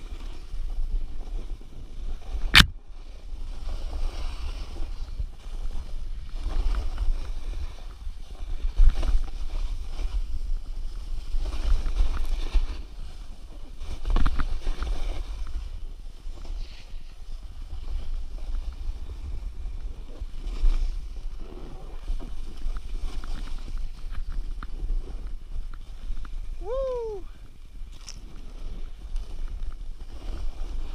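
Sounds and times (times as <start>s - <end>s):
snowboard hissing through snow: 2.2s - 19.6s.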